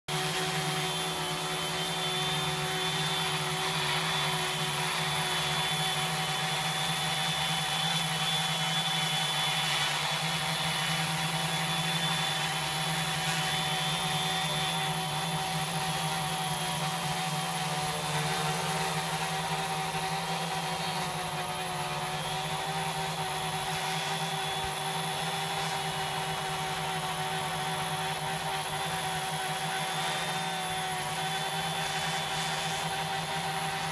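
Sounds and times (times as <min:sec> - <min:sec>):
quadcopter hovering buzz: 0:00.1 - 0:33.9.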